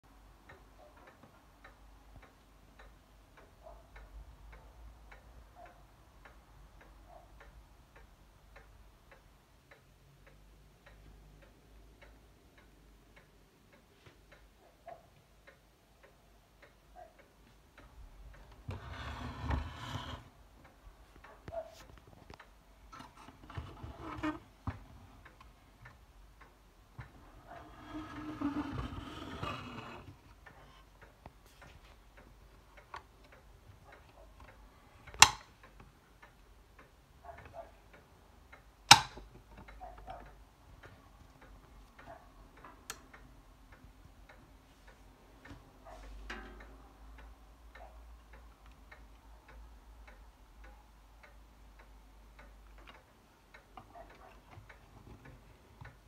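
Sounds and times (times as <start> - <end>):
faint regular ticking: 0.1 - 56.0
lamp switch clicks: 35.1 - 35.5, 38.9 - 39.3.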